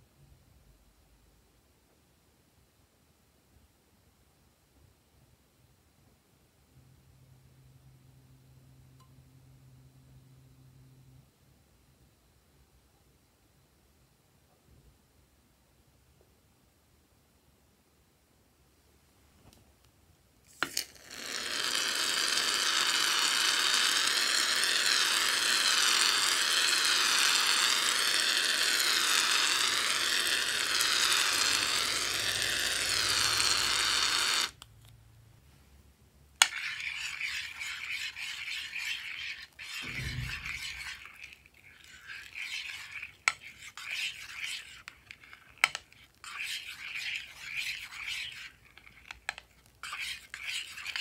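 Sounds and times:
aerosol can spraying: 20.6s - 34.6s, 36.4s - 51.0s
foam stirred in glass dish: 36.4s - 51.0s.

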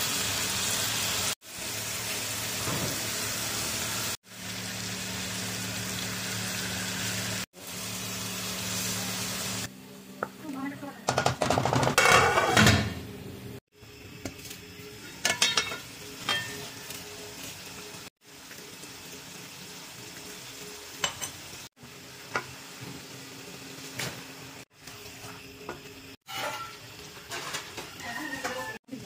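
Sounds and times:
pot cooking hum and hiss: 0.0s - 29.0s
metal pot lid clinking: 15.2s - 16.8s.

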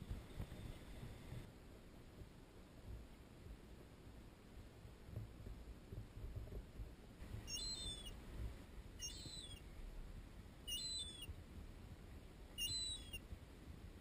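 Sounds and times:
faint low rumble: 0.0s - 14.0s
gull calling: 7.4s - 8.2s, 9.0s - 9.6s, 10.7s - 11.3s, 12.6s - 13.2s.

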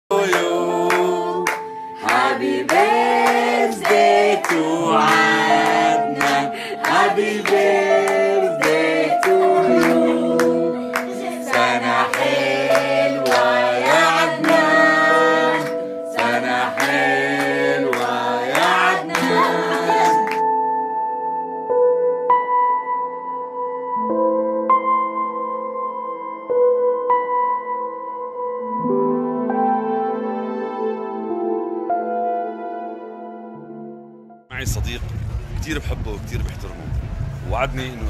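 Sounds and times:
person singing: 0.1s - 20.4s
instrumental accompaniment: 0.2s - 35.6s.

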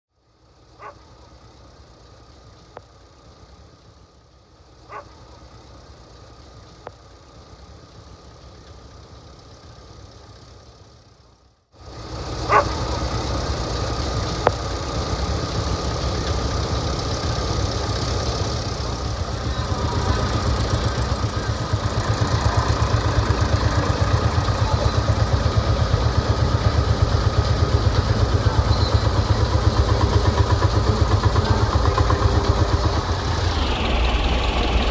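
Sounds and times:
tractor engines running: 0.2s - 34.9s.

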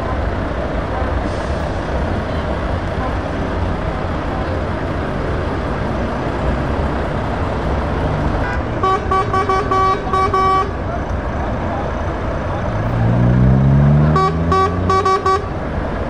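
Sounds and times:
truck diesel engine running: 0.0s - 16.0s
truck horn short toots: 8.4s - 10.8s, 14.0s - 15.6s.

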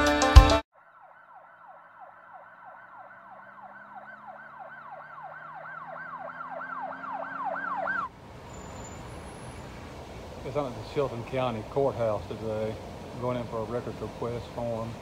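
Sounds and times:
electronic siren sweeping: 0.7s - 9.7s.

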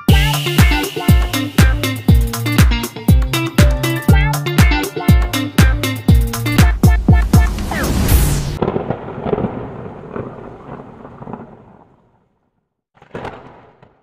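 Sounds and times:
background music: 0.0s - 8.6s
deep boom with thunder-like tail: 6.4s - 11.8s.

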